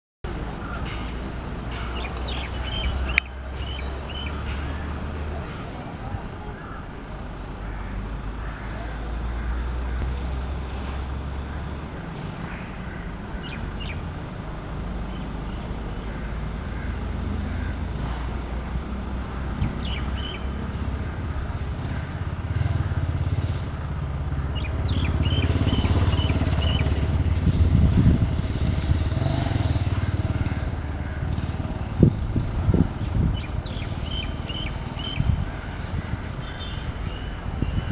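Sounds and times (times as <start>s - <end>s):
bird chirping: 0.6s - 4.8s, 13.4s - 14.1s, 19.6s - 20.6s, 24.5s - 27.8s, 33.0s - 35.4s.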